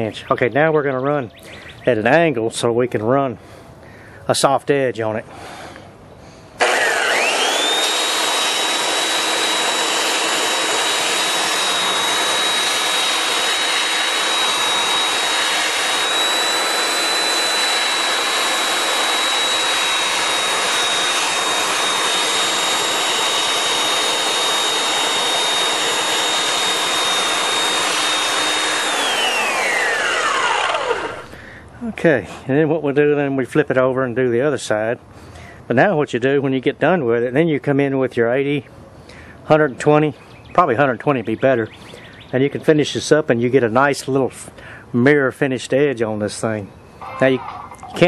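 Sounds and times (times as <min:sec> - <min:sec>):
belt sander motor whine: 0:06.6 - 0:31.7
sanding belt grinding glass: 0:08.6 - 0:30.0.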